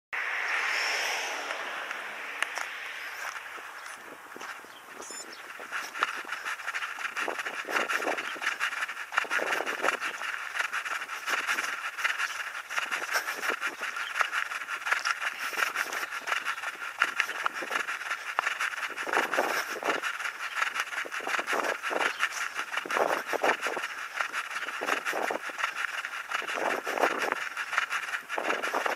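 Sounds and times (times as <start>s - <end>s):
camera rustling hiss: 1.4s - 28.9s
footfalls on asphalt: 1.4s - 28.9s.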